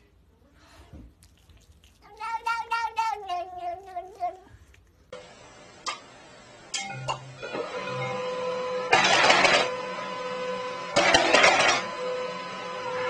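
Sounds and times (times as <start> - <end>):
cat meowing: 2.0 - 4.7.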